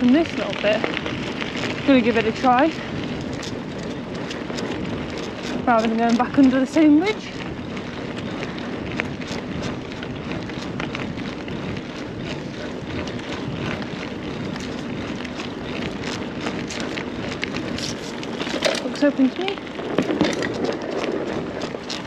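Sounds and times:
bike clicks and rattles: 0:00.0 - 0:22.0
tyre and wind rush: 0:00.0 - 0:22.0.

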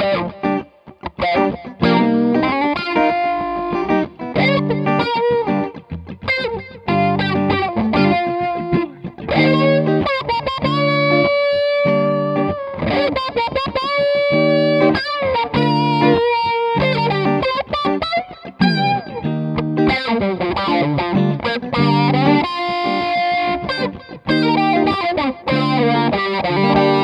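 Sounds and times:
funky electric guitars with wah: 0:00.0 - 0:27.0.

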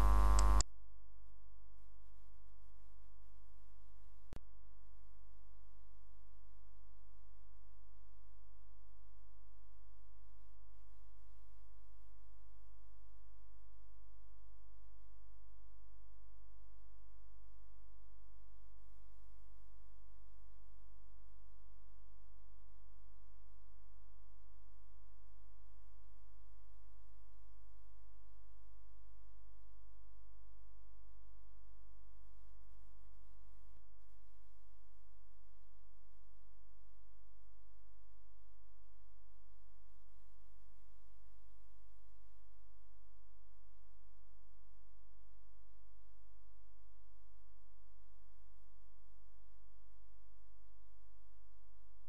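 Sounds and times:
sharp click: 0:00.0 - 0:00.6
steady electrical hum: 0:00.0 - 0:00.6.

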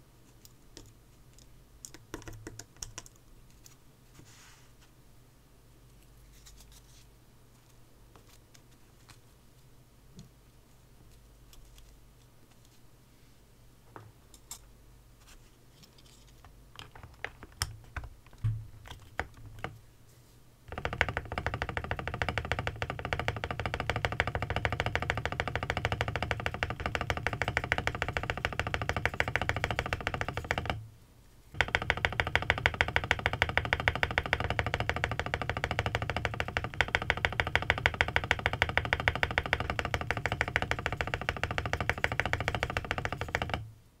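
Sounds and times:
keyboard spacebar clacking: 0:20.7 - 0:30.8, 0:31.6 - 0:43.6.

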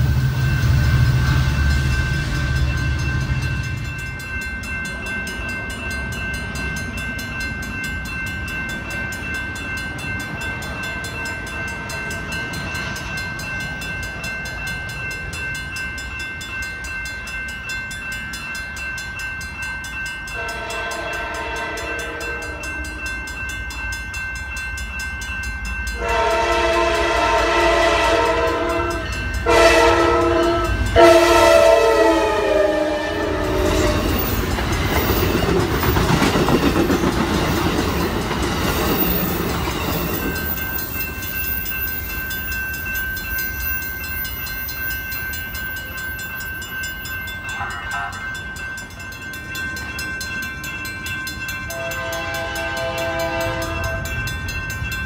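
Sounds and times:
crossing bell ringing: 0:00.0 - 0:55.0
locomotive horn blasts: 0:20.4 - 0:23.0, 0:26.0 - 0:34.2, 0:47.5 - 0:48.2, 0:51.7 - 0:54.1.

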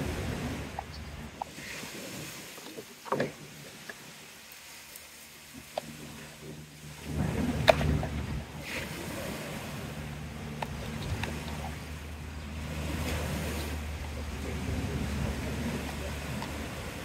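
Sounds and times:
low outdoor rumble: 0:00.0 - 0:01.5, 0:05.1 - 0:17.0
faint hum: 0:05.4 - 0:17.0.

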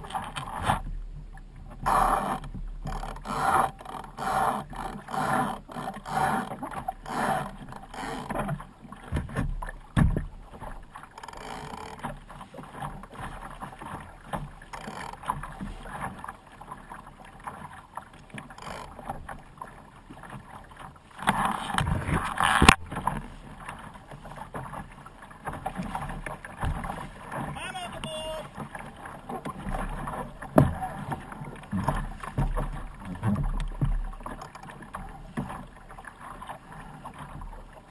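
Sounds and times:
water slapping against boat hull: 0:00.0 - 0:37.9
sharp knock on hull: 0:09.1 - 0:10.3, 0:30.5 - 0:31.2, 0:31.8 - 0:34.1.

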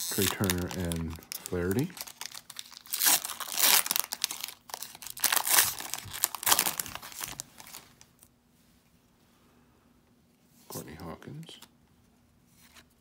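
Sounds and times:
foil wrapper tearing and crinkling: 0:00.0 - 0:07.9.

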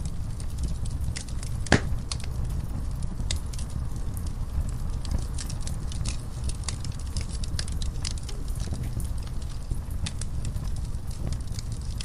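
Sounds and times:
wood fire crackling and rumbling: 0:00.0 - 0:12.0
loud pop from fire: 0:01.1 - 0:02.5.

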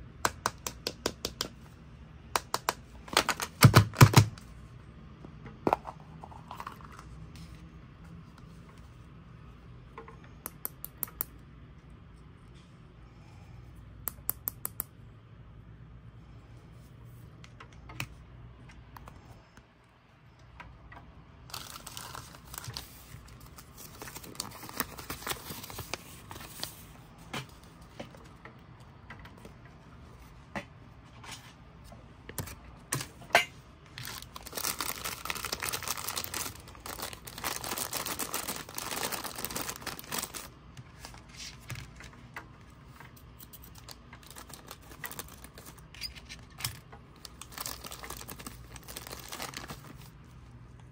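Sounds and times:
toy packaging crinkling: 0:21.4 - 0:26.6, 0:33.9 - 0:42.0, 0:43.5 - 0:45.9, 0:46.7 - 0:50.2.

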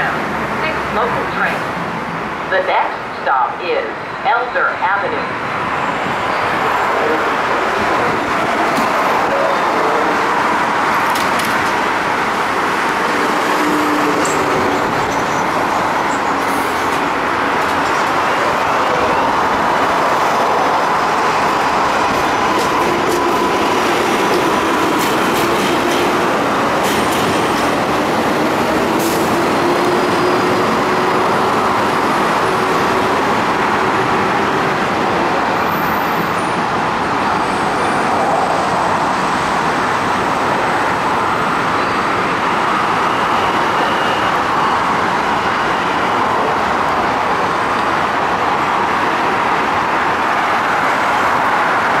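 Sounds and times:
train and rail noise: 0:00.0 - 0:52.0.

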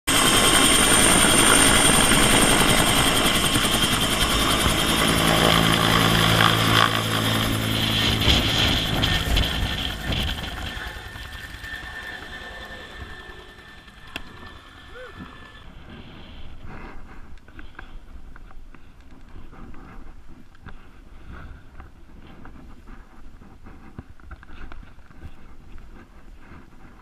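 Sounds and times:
helicopter turbine and rotor: 0:00.1 - 0:18.0.

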